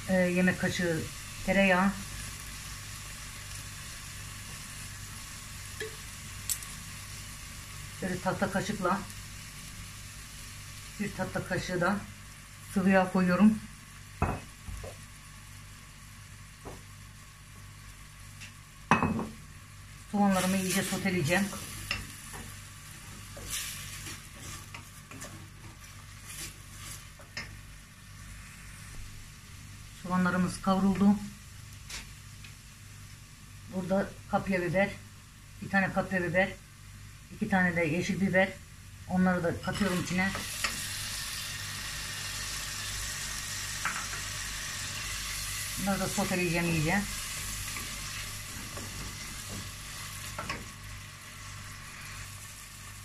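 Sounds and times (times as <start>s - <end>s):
onions sizzling in a pot: 0.0s - 53.0s
wooden spoon scraping: 23.3s - 27.2s.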